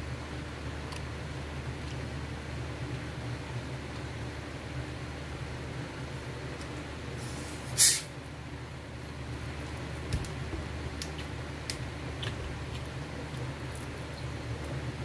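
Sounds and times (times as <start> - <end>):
electric fan humming: 0.0 - 15.0
short loud hiss: 7.2 - 8.1.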